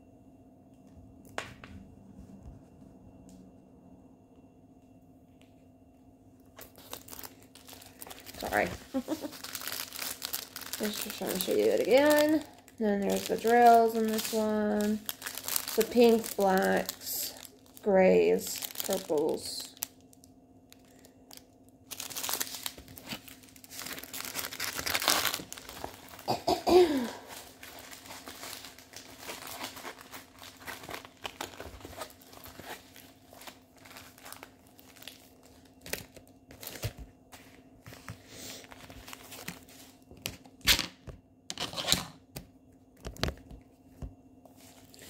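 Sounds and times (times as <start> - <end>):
plastic packaging crinkling: 6.6 - 40.9.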